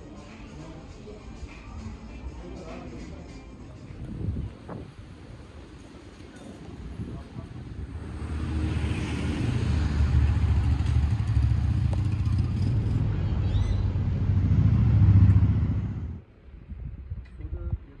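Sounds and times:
vehicle engine rumbling: 0:06.8 - 0:16.2.

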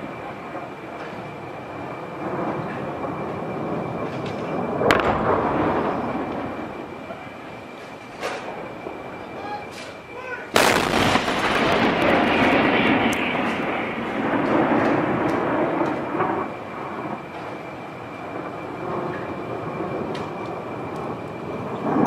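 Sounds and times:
distant artillery explosions rumbling: 0:00.0 - 0:22.0
sharp blast: 0:04.2 - 0:07.2, 0:10.5 - 0:16.5.

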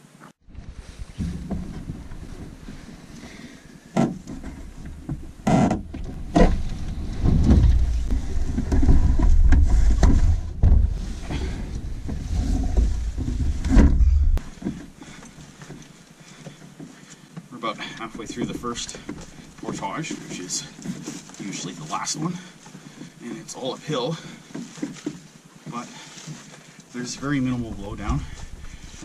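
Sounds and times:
canoe knocks and thumps: 0:01.1 - 0:14.9
heavy low rumble: 0:04.6 - 0:14.4.

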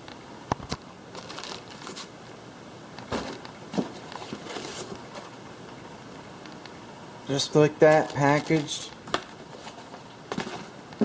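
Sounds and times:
packing rustling and scraping: 0:01.1 - 0:02.1, 0:03.1 - 0:05.4, 0:07.9 - 0:10.8.

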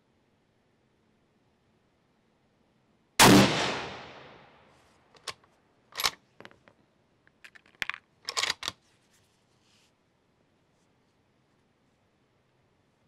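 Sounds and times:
rifle shot: 0:03.2 - 0:04.7
light metallic clicks and clatters: 0:05.1 - 0:08.8.

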